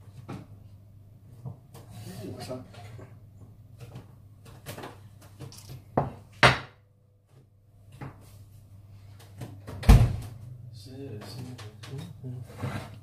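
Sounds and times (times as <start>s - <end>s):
baking dish knocking on wood: 6.0s - 6.8s.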